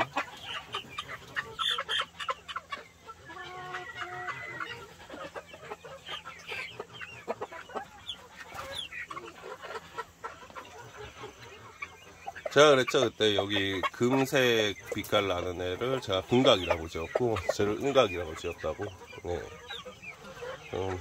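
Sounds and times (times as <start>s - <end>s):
chickens clucking: 0.0s - 21.0s
chicken long held call: 3.2s - 4.9s.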